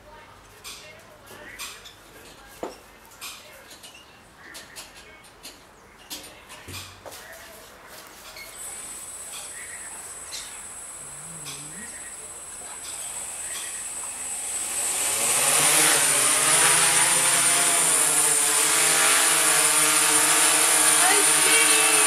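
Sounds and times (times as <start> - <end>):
drone propellers whirring: 10.2 - 22.0.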